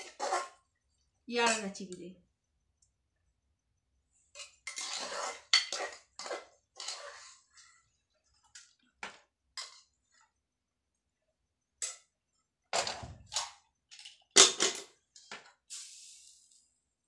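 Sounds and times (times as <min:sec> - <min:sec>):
spoon scraping metal pot: 0:00.0 - 0:00.6, 0:04.3 - 0:07.7.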